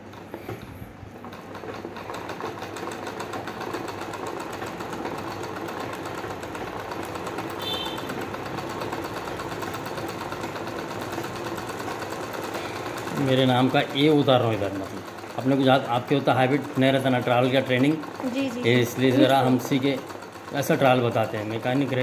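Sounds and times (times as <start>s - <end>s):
sewing machine ticking: 0.0s - 22.0s.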